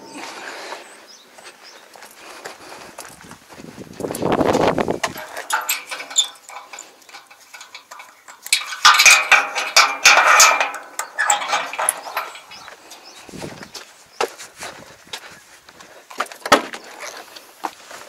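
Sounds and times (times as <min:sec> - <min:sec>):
metal rod clinking and scraping: 0:04.8 - 0:13.5.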